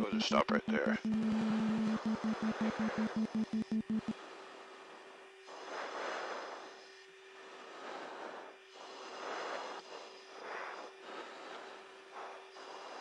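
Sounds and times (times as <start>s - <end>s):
aircraft cabin low hum: 0.0s - 4.6s.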